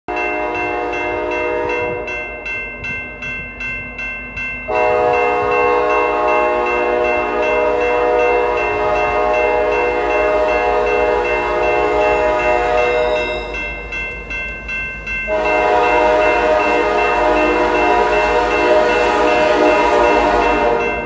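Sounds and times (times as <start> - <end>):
locomotive air horn: 0.1 - 2.2, 4.7 - 13.5, 15.3 - 21.0
crossing bell ringing: 0.1 - 21.0.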